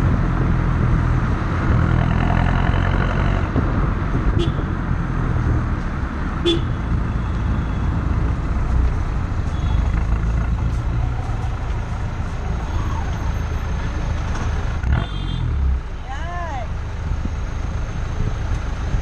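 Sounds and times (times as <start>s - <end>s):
road and tyre noise: 0.0s - 19.0s.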